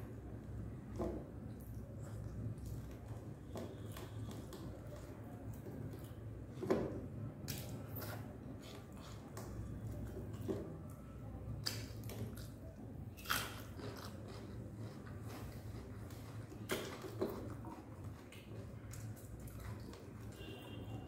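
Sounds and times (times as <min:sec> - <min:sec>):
person chewing: 0:07.5 - 0:10.5, 0:11.6 - 0:20.8.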